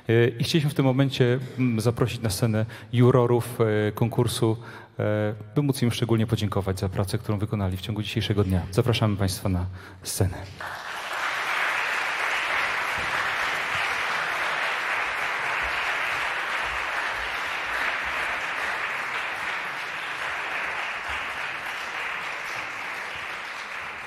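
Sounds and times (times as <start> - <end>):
audience applauding: 10.6 - 24.0.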